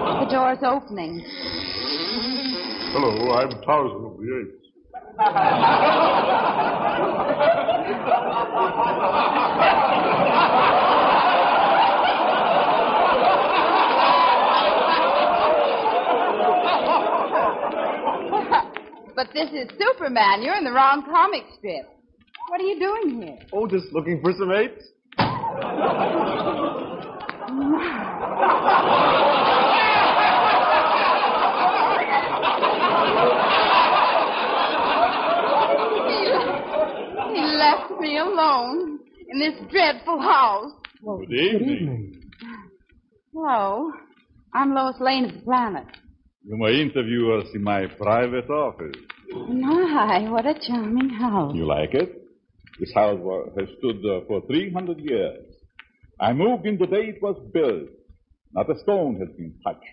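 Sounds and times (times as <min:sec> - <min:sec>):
audience laughing: 0:00.0 - 0:03.6, 0:04.9 - 0:19.5, 0:25.2 - 0:40.6.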